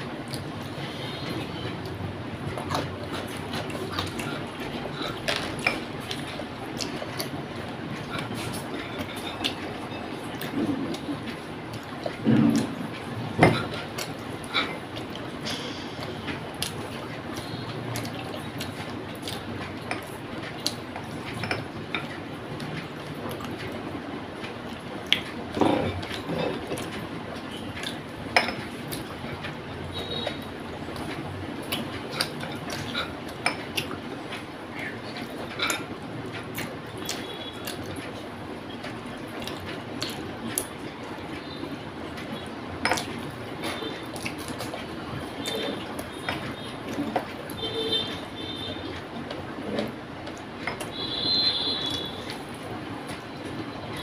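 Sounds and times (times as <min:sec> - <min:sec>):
wet chewing and lip smacks: 0:00.0 - 0:21.4, 0:22.1 - 0:28.1, 0:28.7 - 0:41.5, 0:42.1 - 0:51.2
steady background noise: 0:00.0 - 0:54.0
clicks and taps against plate: 0:27.7 - 0:34.0, 0:50.2 - 0:52.5.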